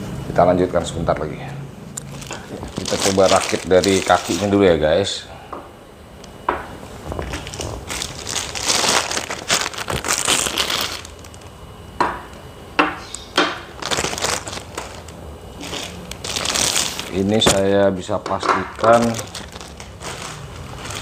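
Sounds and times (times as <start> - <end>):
plastic packaging crinkling: 2.0 - 4.8, 6.8 - 11.7, 12.3 - 17.8, 18.6 - 21.0
sharp knocks on wood: 12.0 - 13.6.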